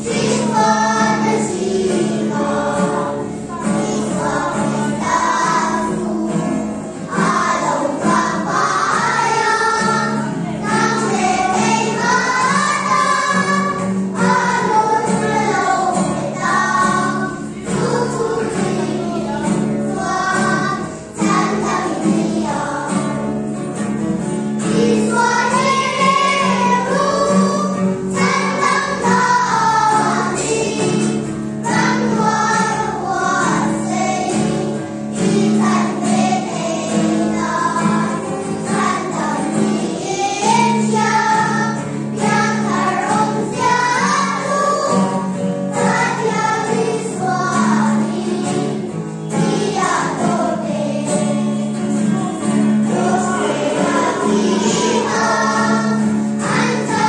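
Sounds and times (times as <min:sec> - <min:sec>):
choir singing: 0:00.0 - 0:23.4, 0:24.6 - 0:57.0.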